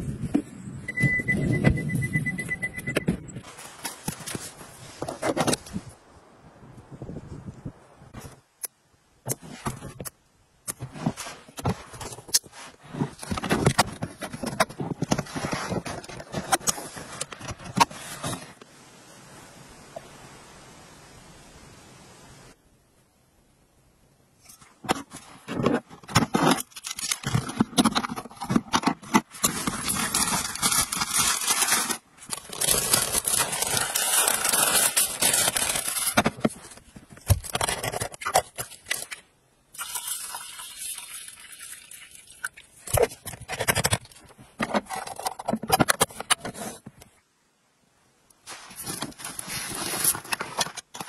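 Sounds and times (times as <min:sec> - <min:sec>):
metal and plastic clattering: 0:10.7 - 0:18.4, 0:24.8 - 0:39.2, 0:42.9 - 0:47.1
steady hiss: 0:18.0 - 0:22.9.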